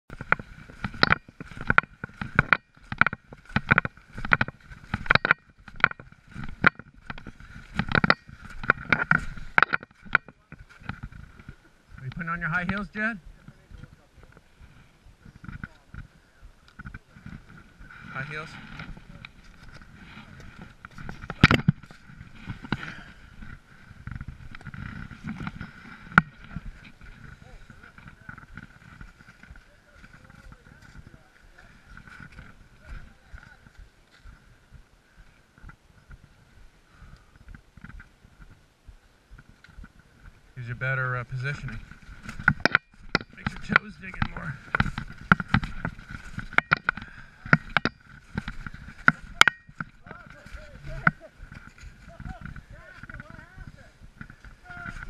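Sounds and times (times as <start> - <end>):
snowshoes crunching in snow: 0.2 - 12.0, 13.4 - 40.6, 43.4 - 55.0
snowshoe footsteps in snow: 0.3 - 12.0, 43.3 - 55.0.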